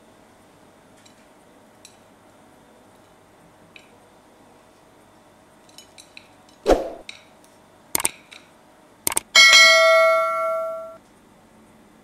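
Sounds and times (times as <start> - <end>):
sharp mouse clicks: 8.0 - 8.2, 9.1 - 9.3
notification bell ding: 9.4 - 11.0.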